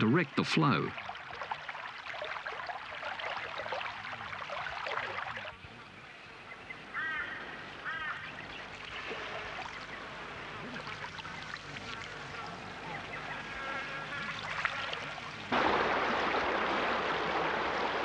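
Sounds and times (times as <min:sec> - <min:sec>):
water gushing and splashing: 0:00.0 - 0:05.6, 0:08.7 - 0:13.2, 0:14.0 - 0:18.0
bird calls: 0:05.8 - 0:10.1, 0:11.2 - 0:15.0.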